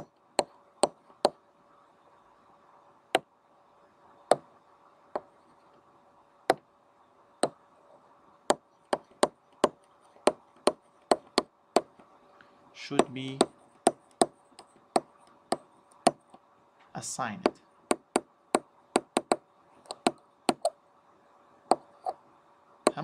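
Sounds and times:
stylus tapping on tablet: 0:00.0 - 0:01.4, 0:08.9 - 0:11.9, 0:13.0 - 0:16.4, 0:17.4 - 0:20.7
faint steady hum: 0:00.0 - 0:23.0.

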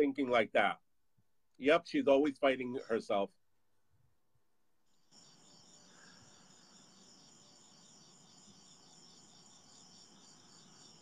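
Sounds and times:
crickets chirping: 0:04.9 - 0:11.0.

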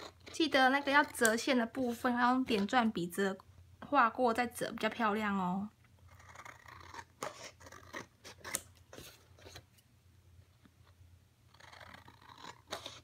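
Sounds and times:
scissors snipping paper: 0:06.9 - 0:08.7.

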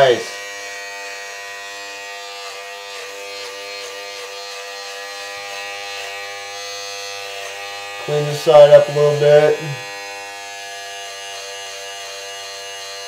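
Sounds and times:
beard trimmer buzzing: 0:00.0 - 0:13.0.

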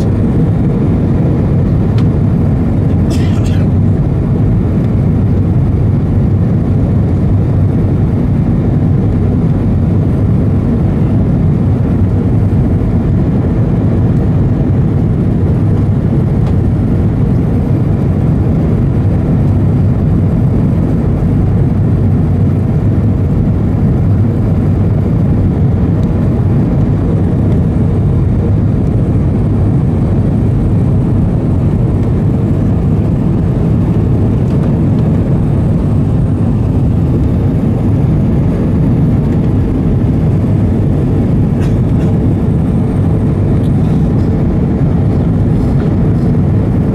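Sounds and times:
airliner cabin engine rumble: 0:00.0 - 0:46.9.

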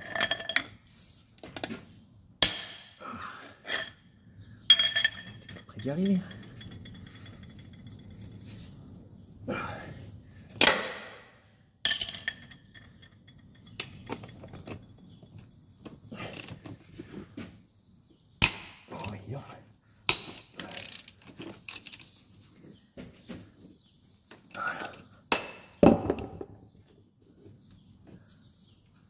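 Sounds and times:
metal hand tools clinking: 0:04.7 - 0:08.1, 0:11.9 - 0:14.5.

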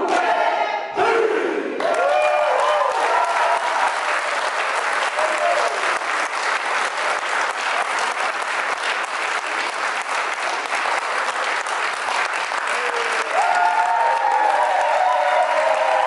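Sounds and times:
audience applauding: 0:01.8 - 0:16.0.

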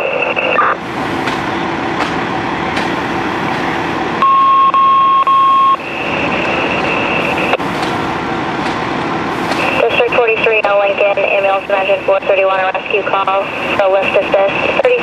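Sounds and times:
fire engines running: 0:00.0 - 0:15.0
loud electronic beep: 0:04.2 - 0:07.6.

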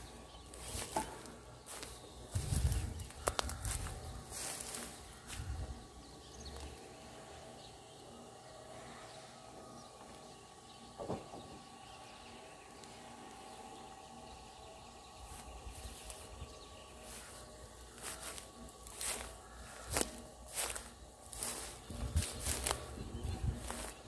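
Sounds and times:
footsteps through tall grass: 0:00.0 - 0:07.3, 0:12.8 - 0:24.0
thin steady hum: 0:00.0 - 0:24.0.

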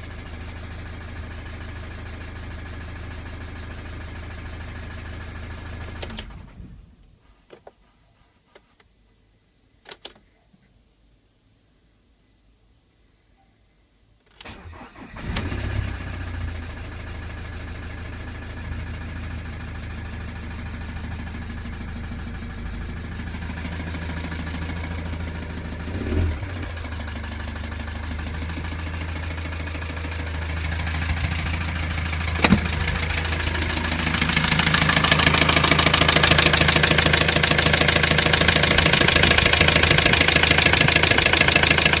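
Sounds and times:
diesel engine cranking and idling: 0:00.0 - 0:07.1, 0:14.4 - 0:42.0
engine knocking: 0:16.2 - 0:42.0.

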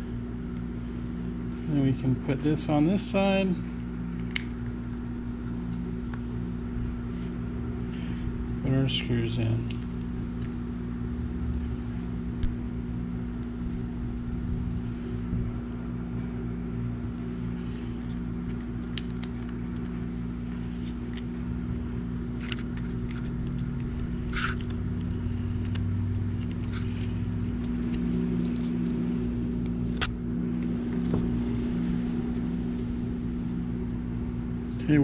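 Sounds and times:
steady low hum: 0:00.0 - 0:35.0
screwdriver clicks and scrapes: 0:22.4 - 0:29.0.

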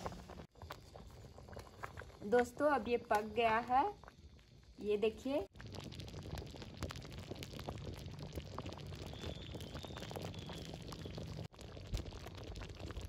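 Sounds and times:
thick mixture bubbling and popping: 0:00.0 - 0:13.0.

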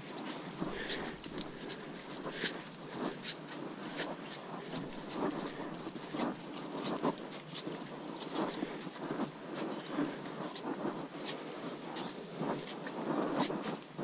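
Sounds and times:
footsteps on leafy dirt trail: 0:00.0 - 0:14.0.

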